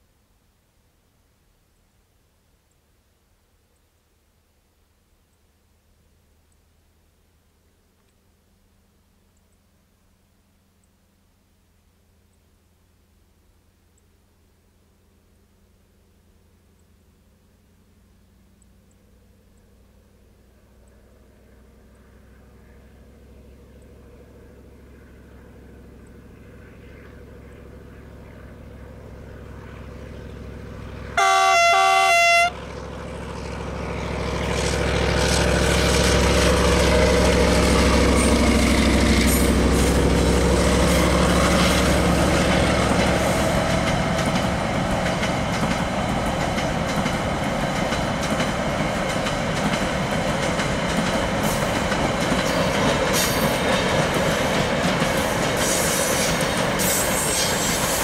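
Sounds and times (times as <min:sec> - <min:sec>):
locomotive engine passing: 0:15.0 - 0:58.0
freight cars rolling on rails: 0:21.8 - 0:58.0
train horn: 0:31.1 - 0:32.9.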